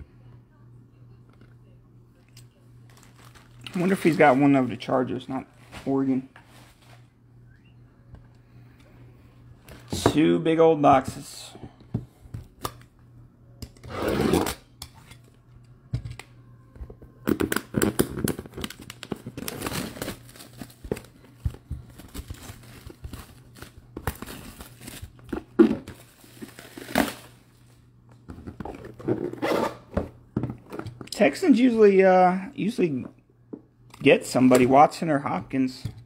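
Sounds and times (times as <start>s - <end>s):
packaging rustling and tearing: 2.9s - 4.6s, 17.4s - 27.4s
cardboard boxes sliding: 13.9s - 14.5s.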